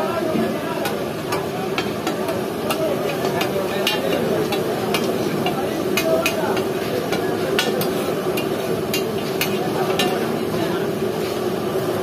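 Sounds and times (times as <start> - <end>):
meat sizzling in oil: 0.6 - 12.0
metal spatula scraping a griddle: 0.8 - 10.3.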